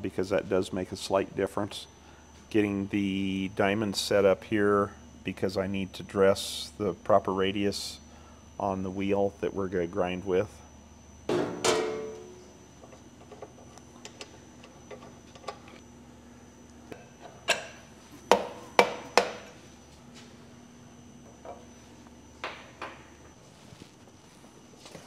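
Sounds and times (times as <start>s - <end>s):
metal clank with ringing: 11.3s - 12.4s.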